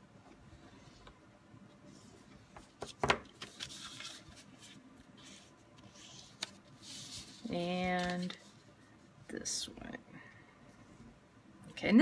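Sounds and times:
paper rustling and rubbing: 1.8 - 8.8.

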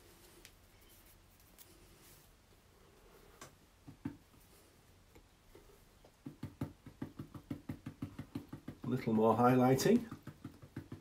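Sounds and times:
paintbrush dabbing taps: 6.0 - 11.0.

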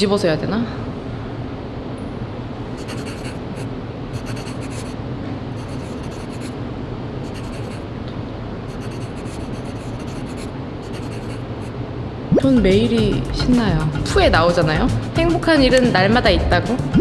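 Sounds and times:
pen scratching on paper: 2.8 - 5.0, 5.6 - 6.6, 7.2 - 7.8, 8.7 - 11.7.

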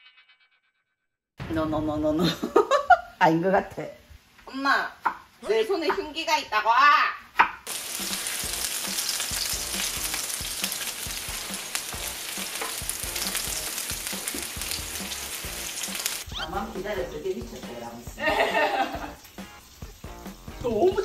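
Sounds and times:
meat sizzling on a griddle: 7.7 - 21.0.

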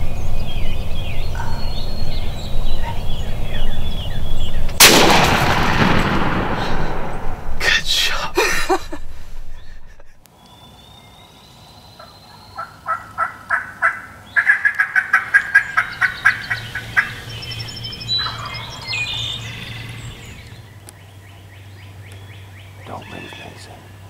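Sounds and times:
turkey yelping: 12.0 - 19.9
high bird chirps: 14.3 - 20.7.

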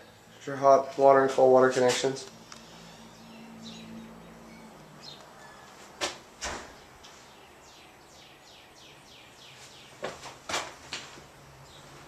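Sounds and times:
small birds chirping: 0.0 - 10.4, 11.2 - 12.0.

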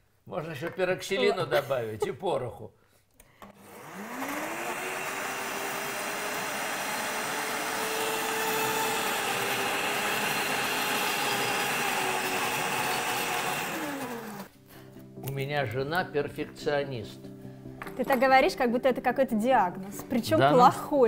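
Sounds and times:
blender running at high speed: 3.4 - 14.5.

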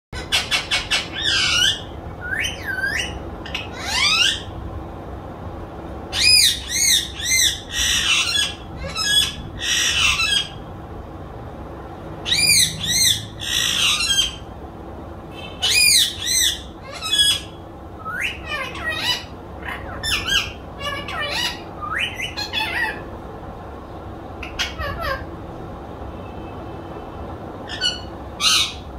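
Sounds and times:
parrot squawking: 0.2 - 4.6, 6.1 - 10.7, 12.2 - 14.5, 15.3 - 23.2, 24.4 - 25.4, 27.6 - 28.9.

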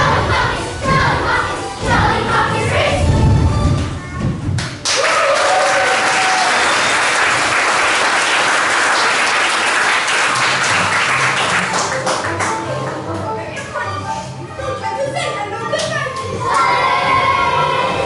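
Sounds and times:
children's song music: 0.0 - 4.9, 10.4 - 18.0
audience applause: 4.8 - 12.5.

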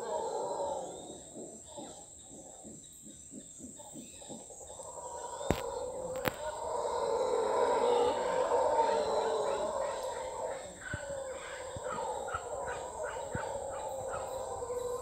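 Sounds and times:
high insect whine: 0.0 - 15.0
monkey howling and grunting: 5.1 - 15.0.

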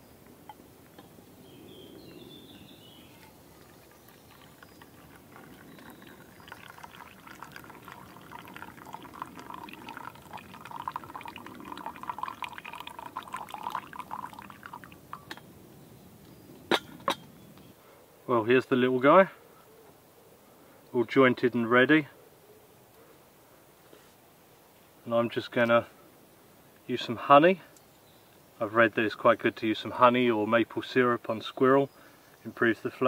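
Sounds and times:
tea pouring into metal mug: 3.1 - 15.4.

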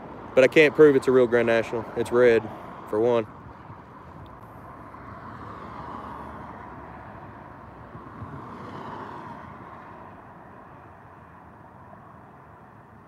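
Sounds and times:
road traffic passing: 0.0 - 13.0.

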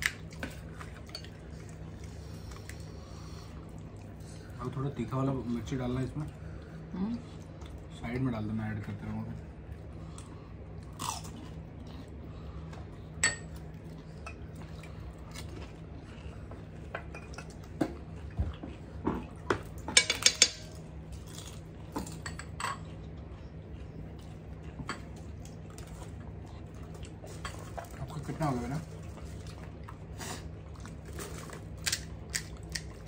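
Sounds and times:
metal spoon clinking on plate and bowl: 19.9 - 20.8.

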